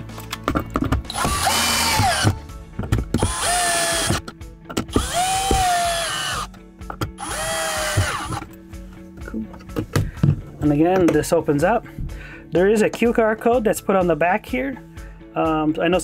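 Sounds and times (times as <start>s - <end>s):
cordless drill driving screws: 1.1s - 2.4s, 3.2s - 4.2s, 4.9s - 6.5s, 7.2s - 8.4s.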